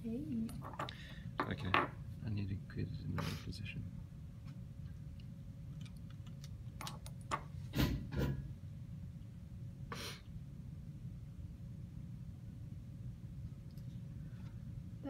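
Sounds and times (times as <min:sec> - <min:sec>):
low steady rumble: 0:08.4 - 0:15.0.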